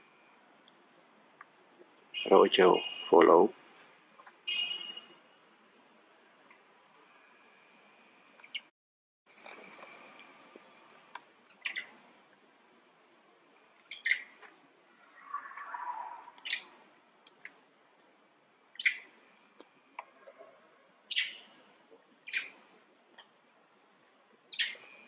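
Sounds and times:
sharp chirping calls: 2.0s - 3.5s, 9.3s - 12.2s, 13.5s - 22.8s, 23.7s - 25.0s
high insect trill: 9.3s - 25.0s.

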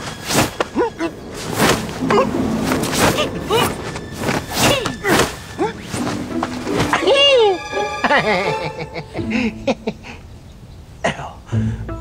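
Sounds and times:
thumping blows: 0.0s - 7.3s
whooshing swings: 0.0s - 7.4s.

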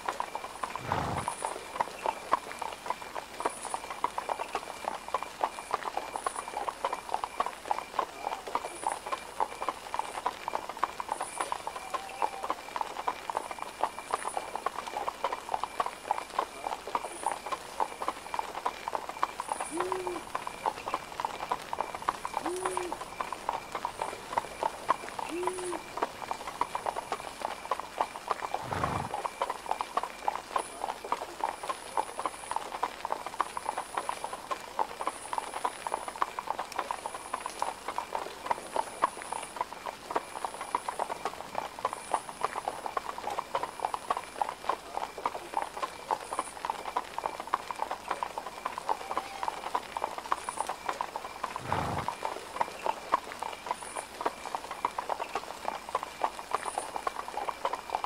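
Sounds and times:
horse hooves clip-clopping: 0.0s - 58.0s.

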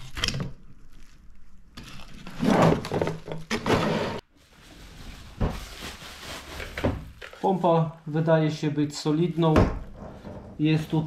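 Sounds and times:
bubble wrap crinkling: 0.0s - 3.0s, 4.2s - 7.7s.

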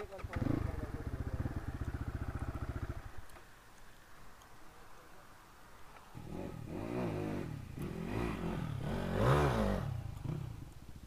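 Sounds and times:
dirt bike engine revving: 0.2s - 3.2s, 6.2s - 10.6s.

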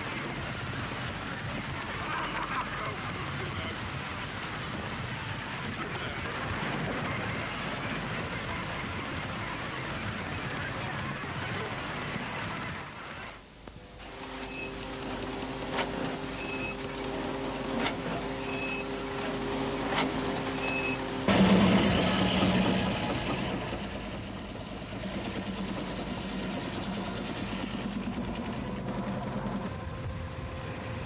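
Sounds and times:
machinery humming: 0.0s - 31.0s
rough engine noise: 13.9s - 31.0s
short high beeps: 16.4s - 16.8s, 18.4s - 18.9s, 20.6s - 21.0s.

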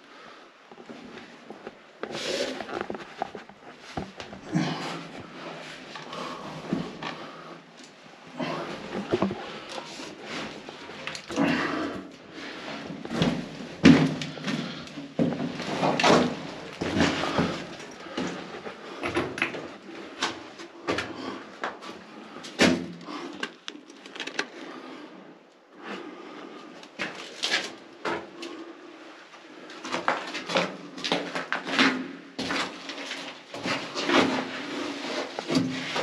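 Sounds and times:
knocks and scrapes: 8.8s - 11.2s.

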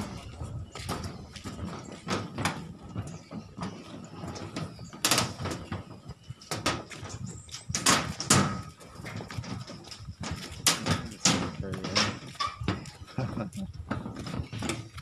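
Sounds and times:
footsteps on footbridge deck: 0.0s - 15.0s.

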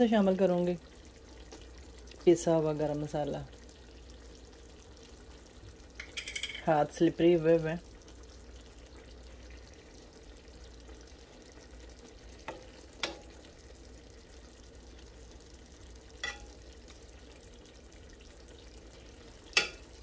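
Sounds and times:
faint sizzle: 0.0s - 20.0s
spatula clinking against pot: 16.2s - 16.5s, 19.5s - 19.9s.

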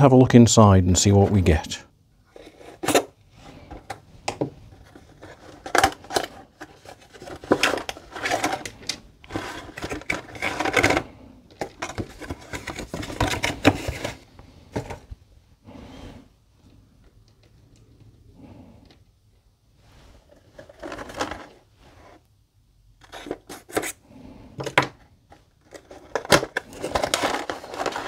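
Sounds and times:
plastic clicks and scrapes: 3.7s - 14.2s, 24.6s - 28.0s.

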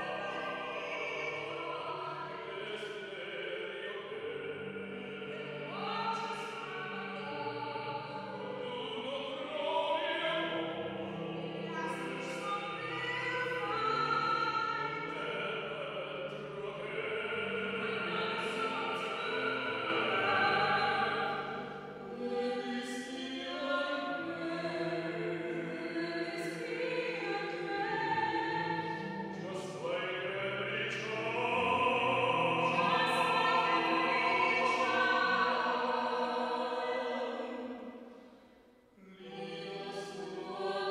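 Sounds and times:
soprano singing: 0.0s - 37.8s, 39.0s - 40.9s
bass-baritone singing: 29.3s - 35.8s.

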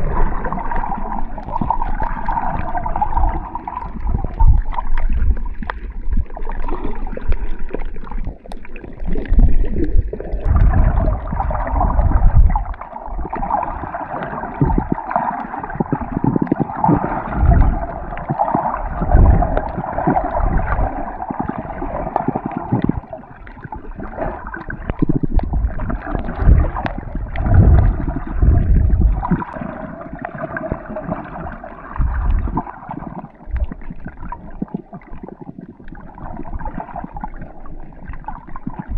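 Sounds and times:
muffled underwater water noise: 0.0s - 38.9s
deep water thumps: 18.9s - 20.8s, 24.9s - 29.5s.

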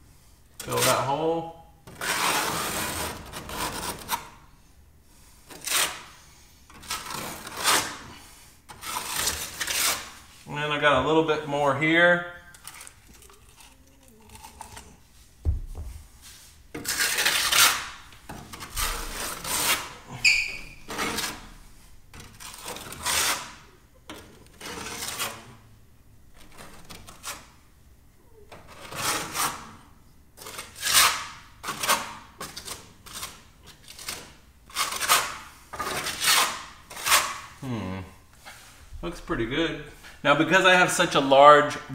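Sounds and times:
trowel scraping wet mortar: 1.9s - 4.3s, 5.5s - 10.3s, 16.7s - 21.6s, 22.2s - 23.7s, 24.5s - 25.6s, 30.4s - 37.5s
blade squeak: 20.2s - 21.0s.

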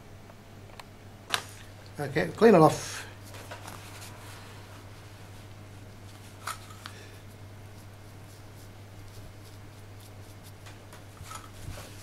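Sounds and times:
steady low hum: 0.0s - 12.0s
tissue rubbing on rubber: 7.7s - 12.0s.

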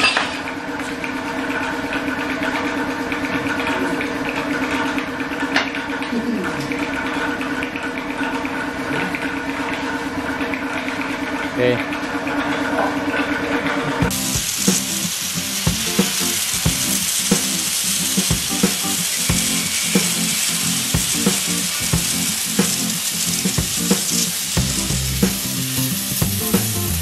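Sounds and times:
cutting torch hissing and popping: 14.1s - 27.0s.

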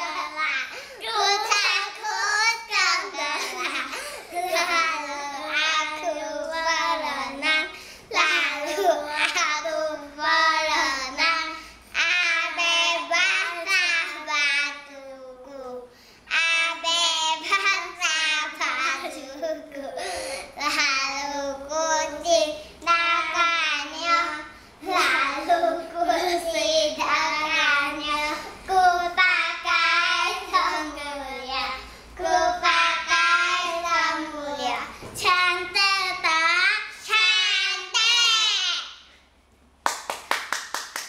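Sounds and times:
hand claps: 39.8s - 41.0s.

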